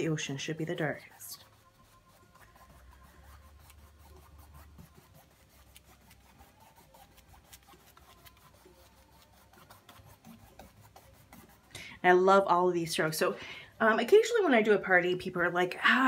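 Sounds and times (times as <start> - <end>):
paintbrush rubbing on canvas: 0.0 - 15.6
brush ticks: 0.5 - 11.8.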